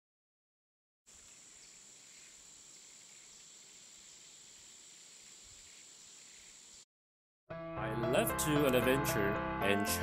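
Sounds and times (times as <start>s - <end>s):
faint steady hiss: 1.1s - 6.8s.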